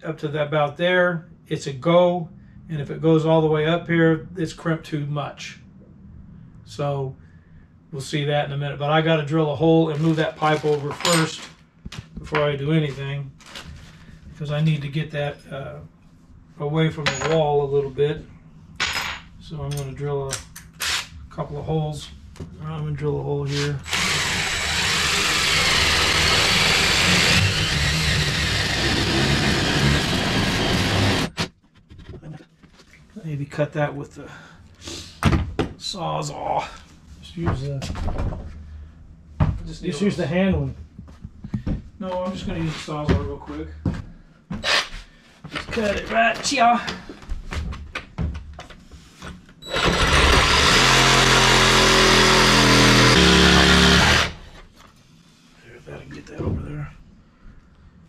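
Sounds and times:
cordless drill boring wood: 0:20.8 - 0:21.0, 0:23.5 - 0:31.5, 0:49.7 - 0:54.5
reciprocating saw cutting wood: 0:23.5 - 0:31.5, 0:49.7 - 0:54.4.

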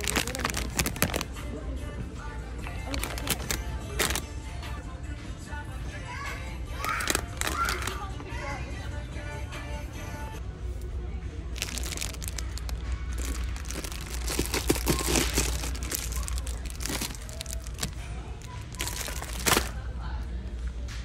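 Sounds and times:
plastic wrappers crinkling: 0:00.0 - 0:01.4, 0:02.7 - 0:04.3, 0:06.8 - 0:08.0, 0:11.6 - 0:19.8.

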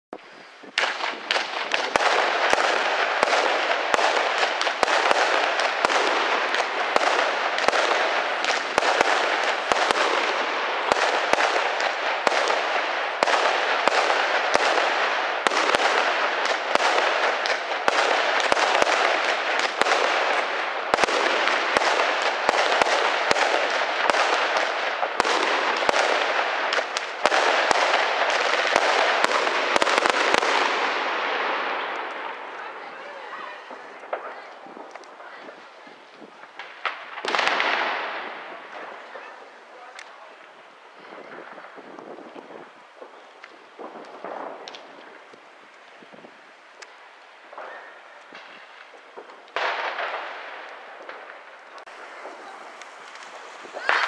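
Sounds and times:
fireworks and firecrackers crackling: 0:00.1 - 0:54.0.

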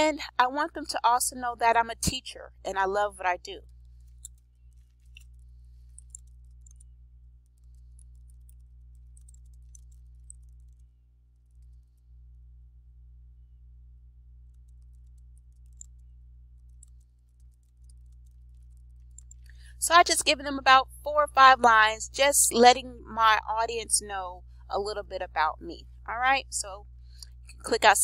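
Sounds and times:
steady low hum: 0:00.0 - 0:28.0
computer keyboard typing: 0:04.0 - 0:10.8, 0:14.5 - 0:16.0, 0:16.6 - 0:19.4.

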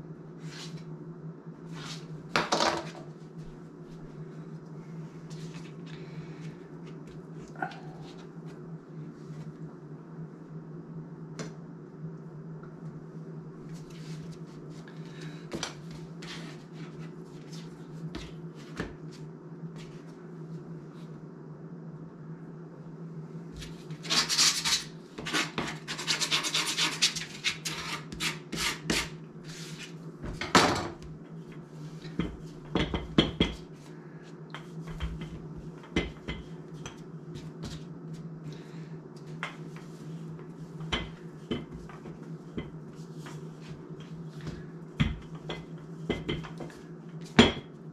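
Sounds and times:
steady low hum: 0:00.0 - 0:47.9
rapid knife scraping and cutting: 0:24.0 - 0:29.1.

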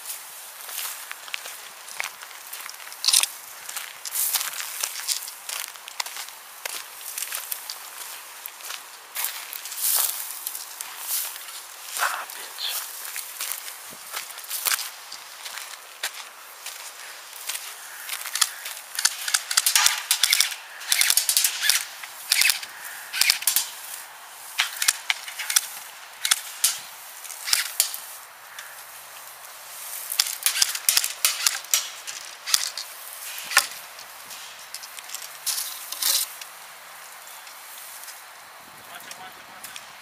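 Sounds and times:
airsoft guns firing: 0:19.0 - 0:22.6.

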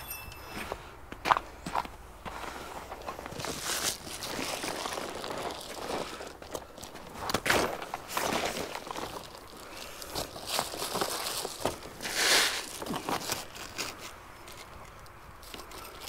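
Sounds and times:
foil insulation crinkling: 0:03.2 - 0:14.8.

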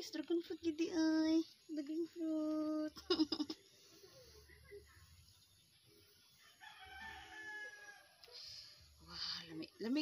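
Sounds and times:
rooster crowing: 0:06.4 - 0:08.2.

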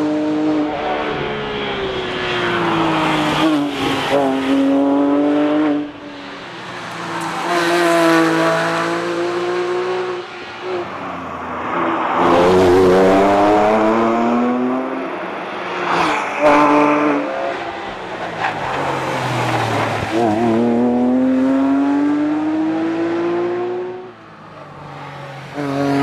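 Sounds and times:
car engine accelerating hard: 0:12.2 - 0:24.1.

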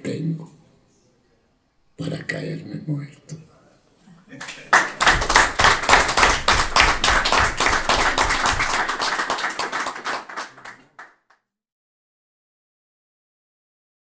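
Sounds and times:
audience applauding: 0:04.4 - 0:11.1.

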